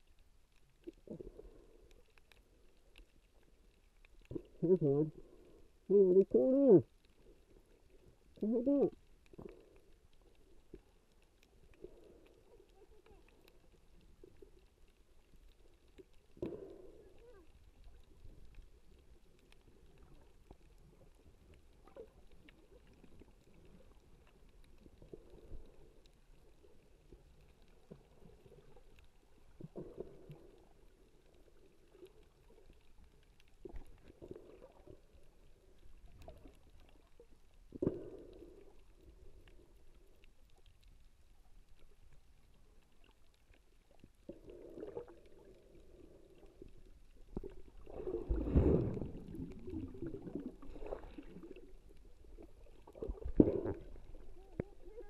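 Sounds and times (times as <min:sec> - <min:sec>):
muffled underwater whooshes: 0:47.8 - 0:51.6.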